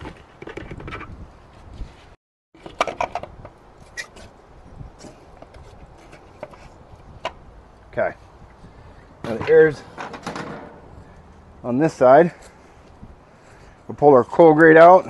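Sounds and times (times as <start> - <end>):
wind on microphone: 0.0 - 2.2, 3.1 - 11.7, 12.5 - 13.8
sharp knocks and clatter: 9.2 - 11.4.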